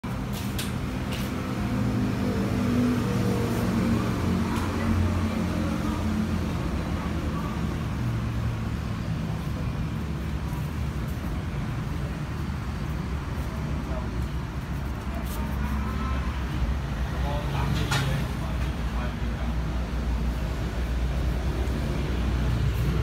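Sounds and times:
road traffic engine hum: 0.0s - 23.0s.

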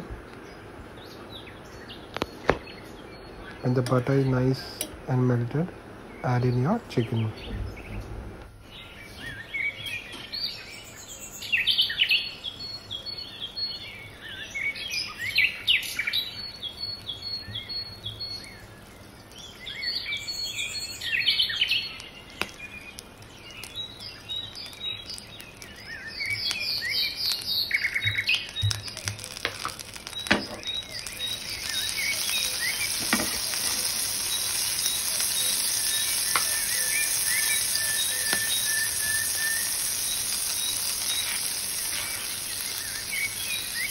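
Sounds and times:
small birds chirping: 0.0s - 43.9s
butter sizzling in frying pan: 16.7s - 43.9s.

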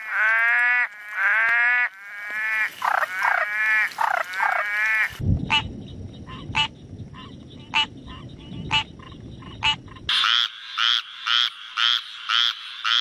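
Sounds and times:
tree frog rasping calls: 0.0s - 13.0s
tree frogs croaking: 0.0s - 13.0s
low rumble: 5.2s - 10.1s.

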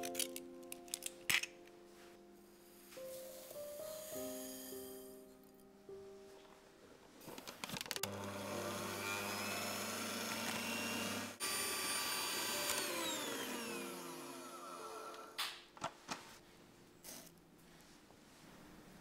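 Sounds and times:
electric hand mixer whisking: 8.1s - 15.4s.

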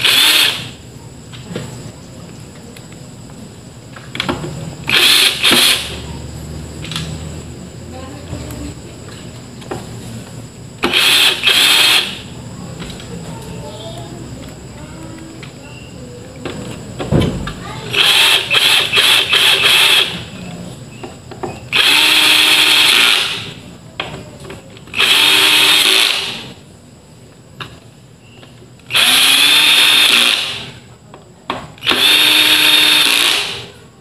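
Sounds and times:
cordless drill whirring: 0.0s - 0.8s, 4.9s - 6.0s, 10.8s - 12.3s, 17.9s - 20.2s, 21.7s - 23.6s, 24.9s - 26.6s, 28.9s - 30.8s, 31.8s - 33.7s.

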